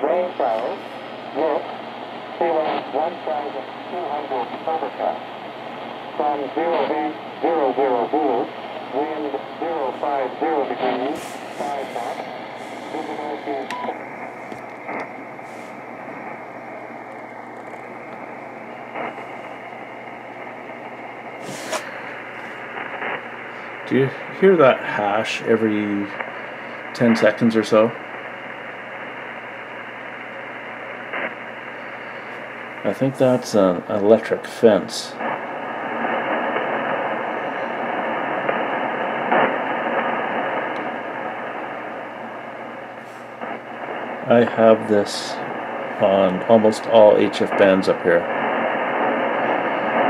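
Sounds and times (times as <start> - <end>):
loud radio crackle: 0.0 - 50.0
radio static hiss: 0.0 - 50.0
burst of radio hash: 6.1 - 14.2.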